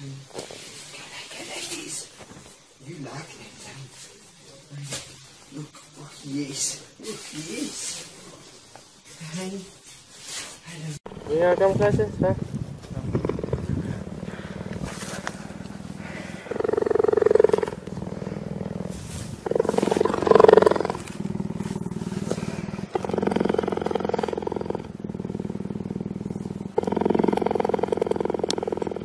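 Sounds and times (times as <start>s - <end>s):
cheetah purring: 11.1s - 29.0s.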